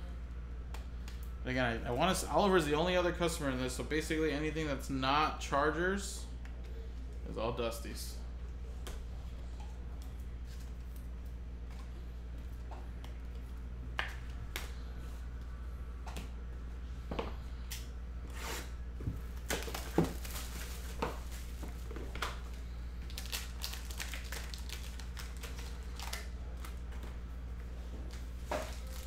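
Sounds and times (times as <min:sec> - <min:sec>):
steady low hum: 0:00.0 - 0:29.0
plastic wrapping crinkling and tearing: 0:19.3 - 0:22.3, 0:23.0 - 0:26.9, 0:28.5 - 0:29.0.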